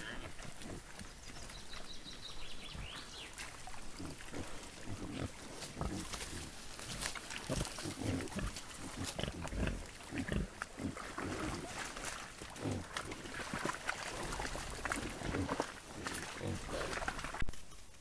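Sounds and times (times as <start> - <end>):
wild boar grunting: 0.0 - 1.0, 3.7 - 17.4.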